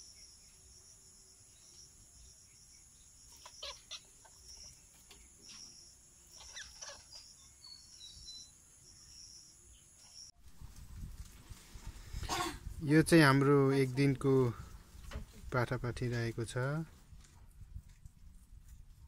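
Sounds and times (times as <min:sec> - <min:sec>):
high insect trill: 0:00.0 - 0:10.4
faint bird calls: 0:03.2 - 0:10.3.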